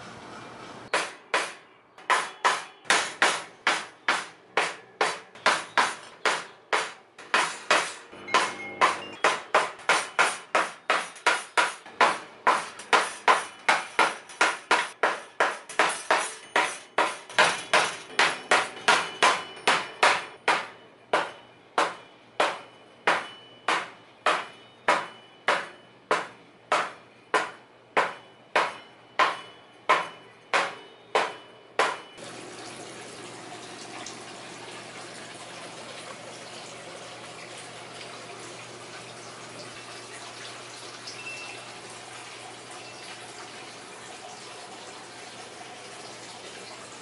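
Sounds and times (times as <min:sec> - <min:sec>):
hammer tapping nails: 0:00.9 - 0:32.1.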